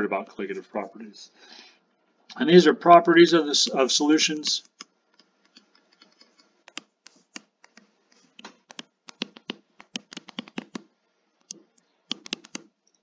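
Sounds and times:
stylus tapping on tablet screen: 4.7 - 12.8.

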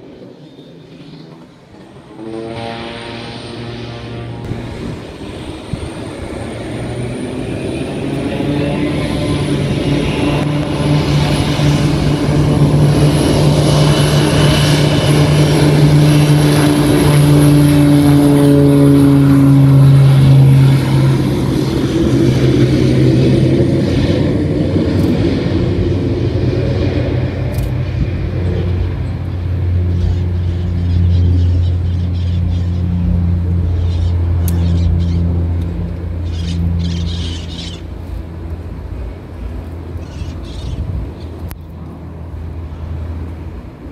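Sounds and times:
propeller plane engine droning: 0.0 - 43.9.

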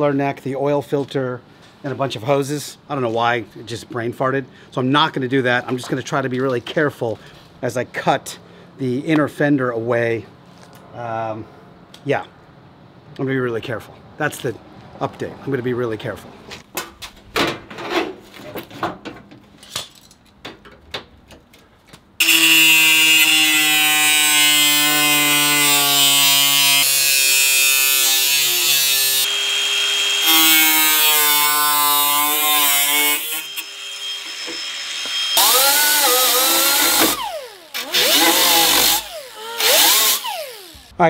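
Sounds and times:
angle grinder cutting steel: 22.2 - 41.0.

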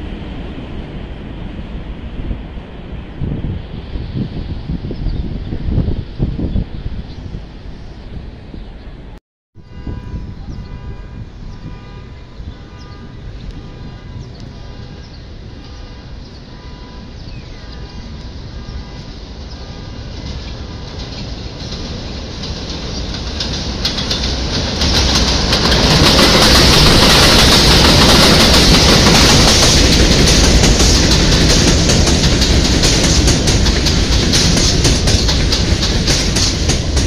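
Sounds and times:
subway train passing: 0.0 - 37.0
train wheel clatter and rumble: 17.6 - 37.0.

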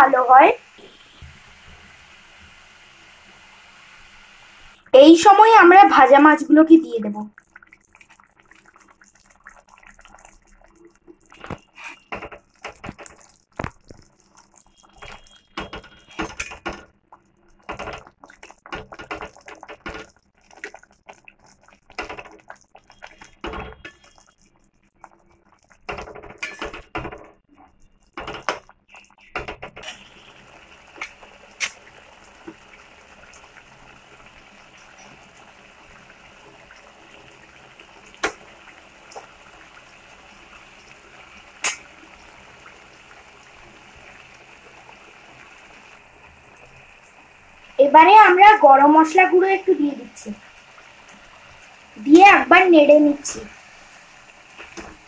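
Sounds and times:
curry simmering hiss: 0.0 - 7.0, 29.8 - 55.0
spatula scraping a pan: 11.6 - 12.1.

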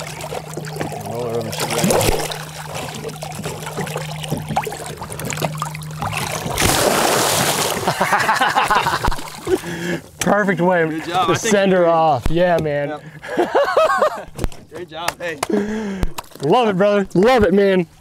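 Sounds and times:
fish splashing loudly: 0.0 - 8.2
water sloshing and splashing: 0.0 - 11.2.

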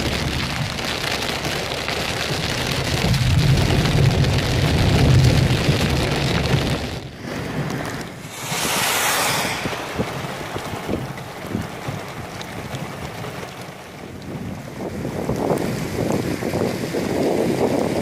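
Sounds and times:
heavy rain on car: 0.0 - 18.0
wind noise: 2.8 - 18.0
rushing stream: 7.2 - 14.4.

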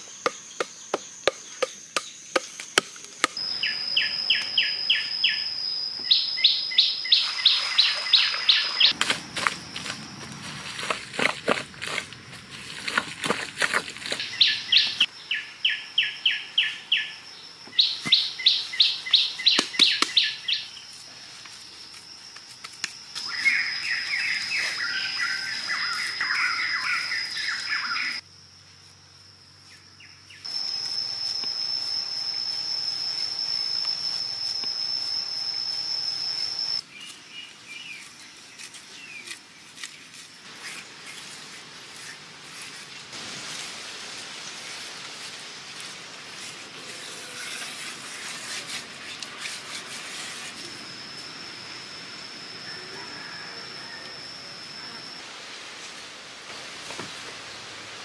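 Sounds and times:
birds chirping and warbling: 0.0 - 9.0, 13.7 - 20.9, 23.2 - 28.2
high-pitched insect drone: 0.0 - 36.9, 44.5 - 55.4.

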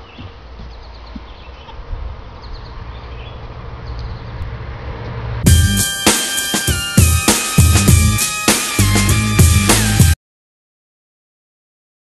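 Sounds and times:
rap music with heavy drums: 5.4 - 10.2.

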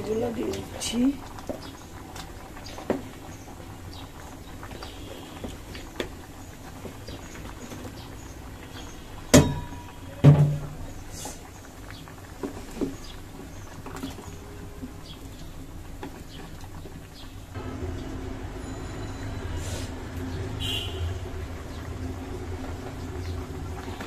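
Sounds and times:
wooden spatula knocking metal pot: 9.3 - 10.8.

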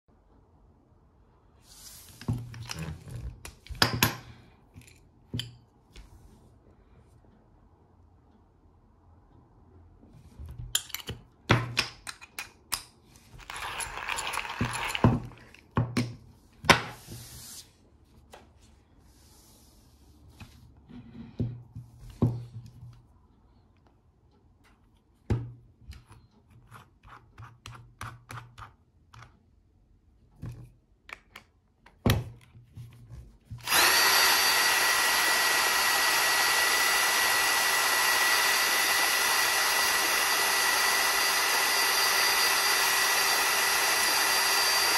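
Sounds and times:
cordless drill whining: 13.4 - 15.4, 33.6 - 44.9.

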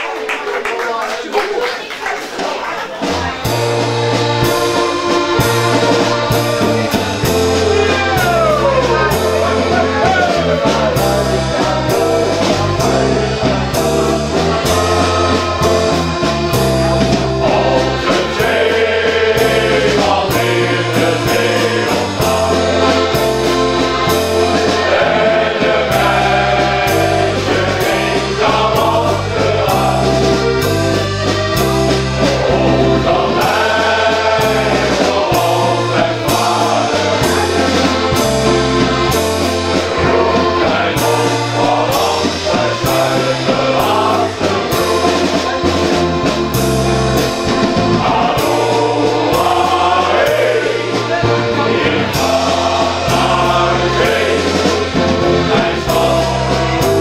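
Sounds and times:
instrumental accompaniment with bass: 3.0 - 57.0
men's choir singing: 3.0 - 57.0.

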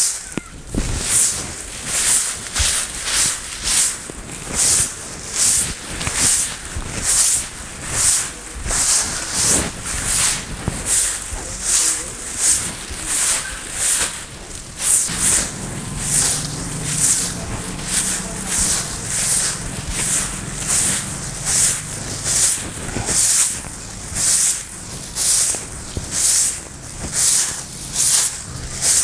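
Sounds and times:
broom sweeping concrete floor: 0.0 - 29.0.

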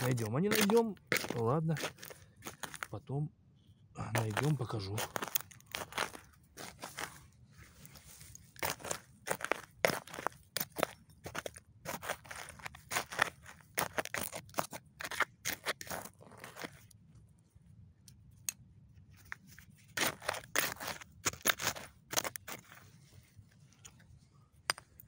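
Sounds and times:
trowel scraping soil and glass: 9.9 - 16.9, 19.6 - 23.0.

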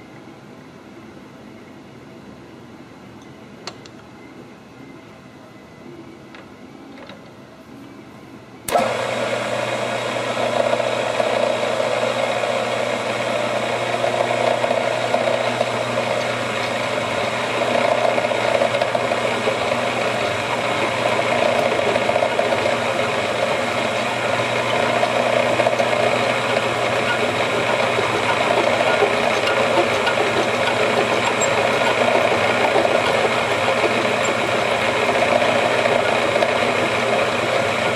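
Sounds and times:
spindle motor running: 8.7 - 37.9.

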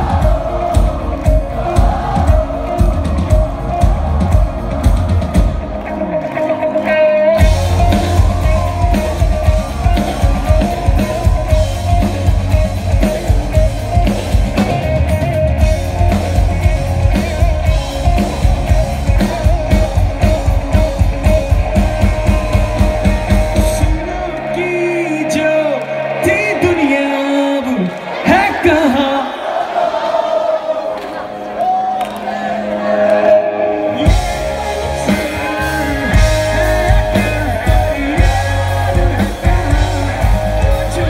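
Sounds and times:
rock band playing live: 0.0 - 29.2, 31.0 - 41.0
person singing: 15.6 - 29.4, 32.2 - 41.0.

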